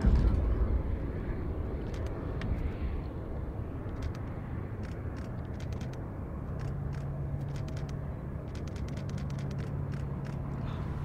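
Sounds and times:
jet engines low rumble and hum: 0.0 - 11.0
faint clicks: 6.6 - 10.5.

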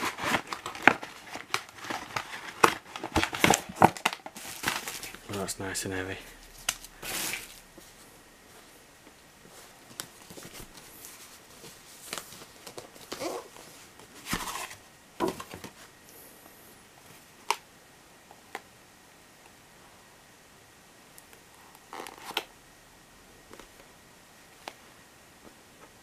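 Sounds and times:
cardboard box rustling: 0.0 - 5.2, 9.5 - 15.8.

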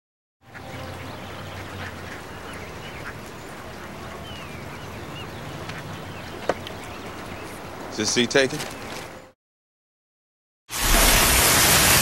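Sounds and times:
bird chirps: 0.5 - 7.6.

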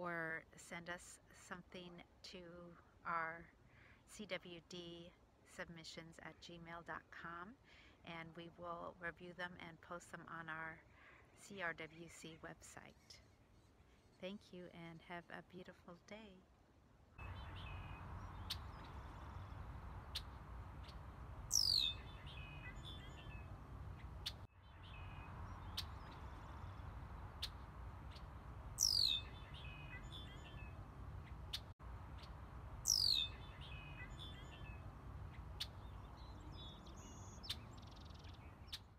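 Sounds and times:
faint chirps: 17.2 - 27.6, 28.2 - 30.8, 32.8 - 34.8
steady low rumble: 17.2 - 37.0
bird whistling downward calls: 21.5 - 23.4, 28.8 - 30.6, 32.8 - 34.7.

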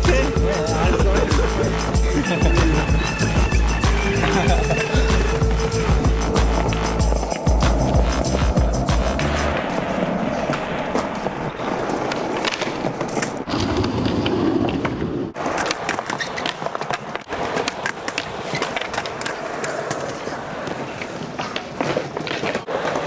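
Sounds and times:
skateboard wheels rolling on asphalt: 0.0 - 23.0
skateboard clacking on ground: 9.5 - 23.0.

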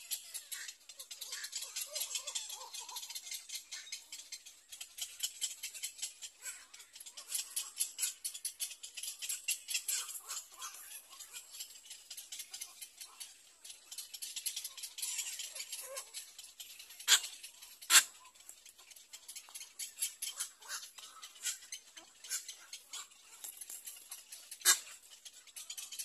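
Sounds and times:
nestlings chattering clicking calls: 0.0 - 26.0.

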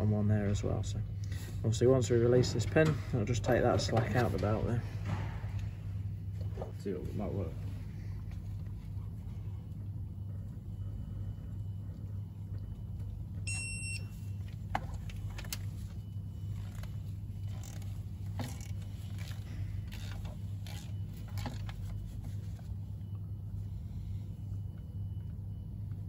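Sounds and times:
steady low hum: 0.0 - 26.0
torque wrench beep: 13.5 - 14.3.

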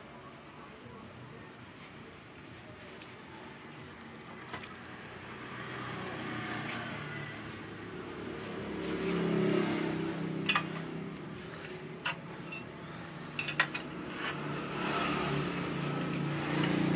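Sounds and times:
passing vehicle engine: 4.6 - 16.9.

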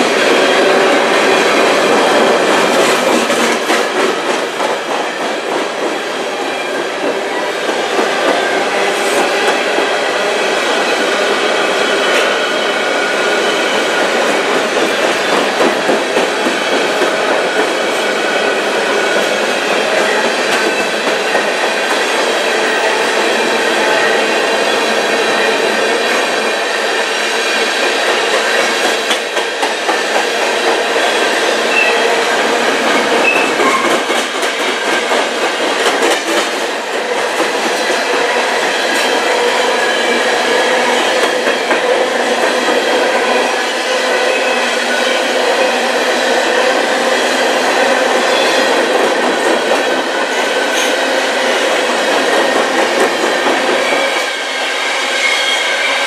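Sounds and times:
steel wheels rumbling on rail: 0.0 - 56.0
wheels clacking over rail joints: 31.6 - 39.5.

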